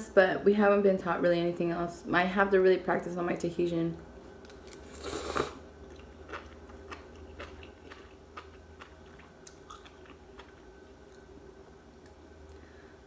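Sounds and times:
chewing with mouth clicks: 0:04.5 - 0:11.3
person slurping noodles: 0:04.8 - 0:05.6.

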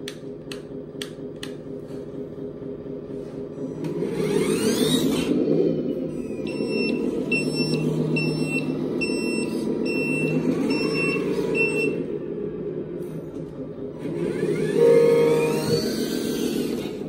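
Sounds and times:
simulated truck engine: 0:00.0 - 0:17.0
high reversing beeps: 0:05.9 - 0:12.1, 0:14.6 - 0:16.3.

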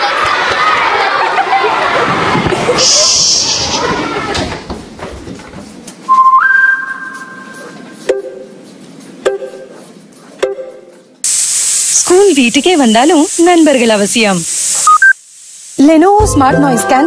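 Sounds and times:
brief hiss: 0:02.7 - 0:03.9
shrill whistling tone: 0:06.1 - 0:07.7.

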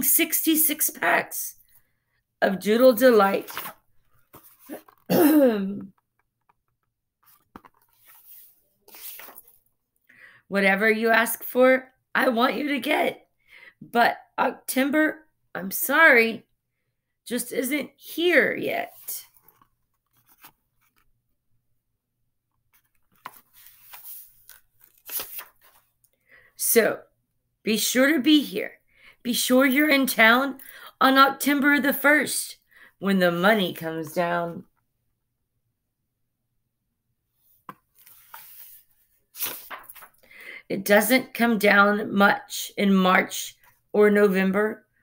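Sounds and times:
book paper rustling: 0:03.1 - 0:05.1, 0:06.4 - 0:09.7, 0:18.8 - 0:21.2, 0:22.7 - 0:25.9, 0:37.6 - 0:40.2.

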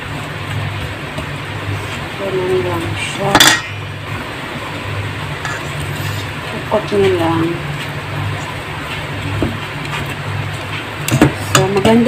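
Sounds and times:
metal tongs scraping bowl: 0:05.4 - 0:06.4.

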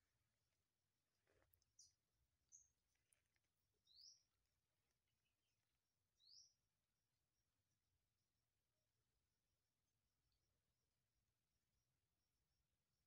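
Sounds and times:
faint bird chirps: 0:01.2 - 0:08.0.

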